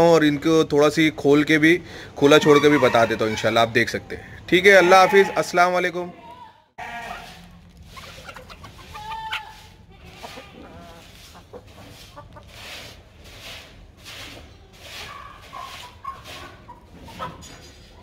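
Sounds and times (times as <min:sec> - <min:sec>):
chickens clucking: 0:02.2 - 0:05.3, 0:07.0 - 0:18.0.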